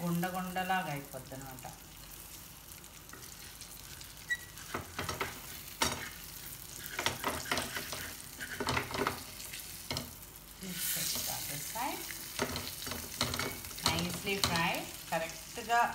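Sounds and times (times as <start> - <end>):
fish sizzling in frying pan: 0.0 - 15.9
spatula scraping and tapping pan: 4.3 - 10.2, 12.2 - 14.8.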